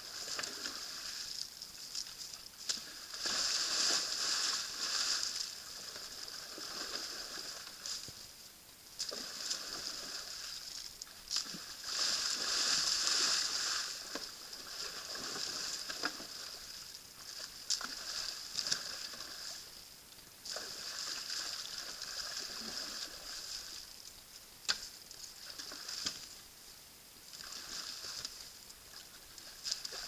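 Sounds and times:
elk splashing in mud: 2.6s - 8.1s.

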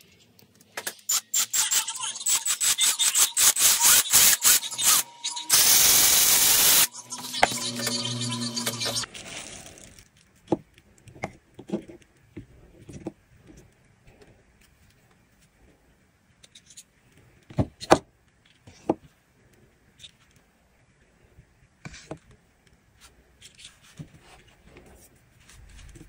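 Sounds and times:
small motor humming: 1.1s - 9.1s.

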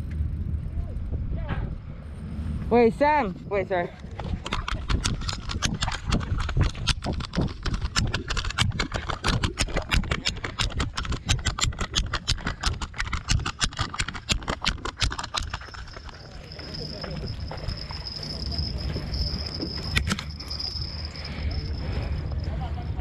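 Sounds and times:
rapid irregular knocking: 4.2s - 21.2s.

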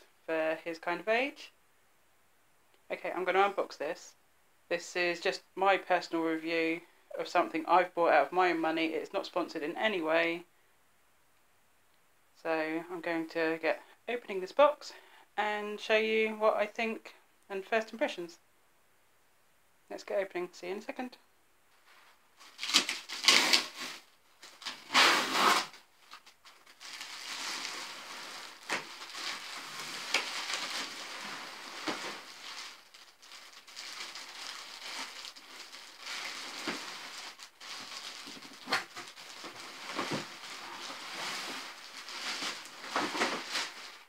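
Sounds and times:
plastic wrapping crinkling: 21.9s - 44.0s.

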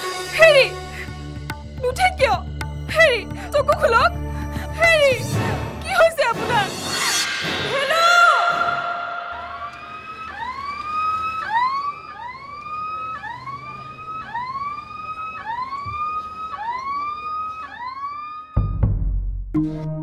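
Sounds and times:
ambulance siren: 8.3s - 18.8s.

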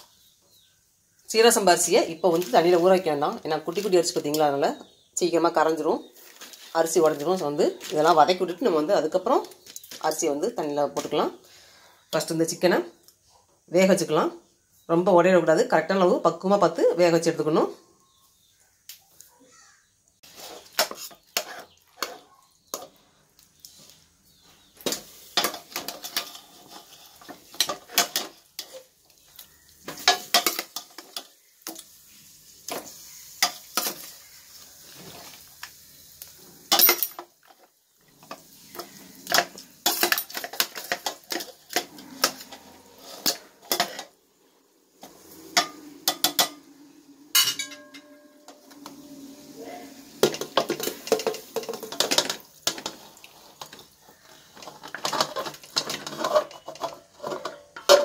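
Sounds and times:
steel ladle clanking on metal: 47.3s - 48.6s, 54.6s - 58.0s.

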